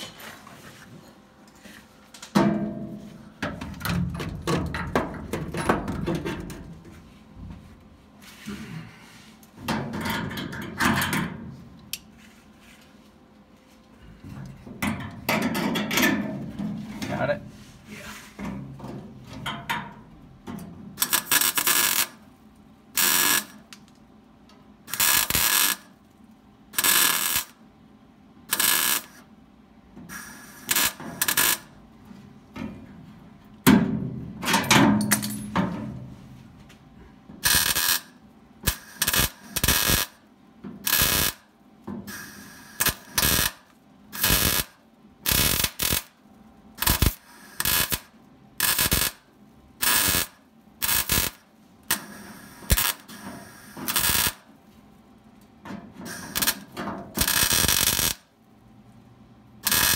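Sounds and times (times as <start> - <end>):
welder tack-welding: 21.0 - 22.2, 22.9 - 24.0, 24.9 - 26.0, 26.7 - 27.6, 28.5 - 29.3, 30.1 - 31.8, 37.4 - 40.2, 40.8 - 41.5, 42.1 - 46.2, 46.8 - 54.5, 56.0 - 58.3, 59.6 - 59.9.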